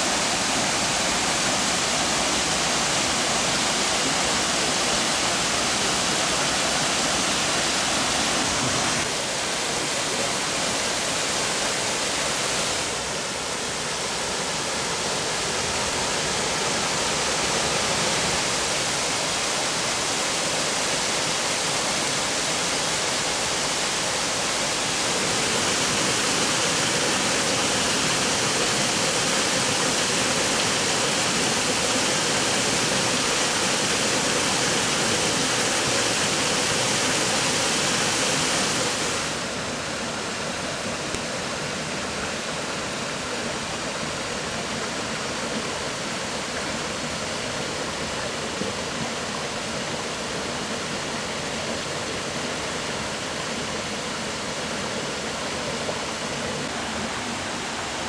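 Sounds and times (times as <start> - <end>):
waterfall rushing: 0.0 - 58.0.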